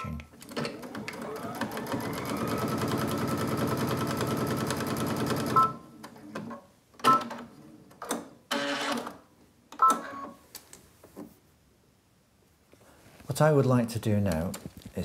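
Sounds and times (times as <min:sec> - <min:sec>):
sewing machine stitching: 0:00.4 - 0:05.6.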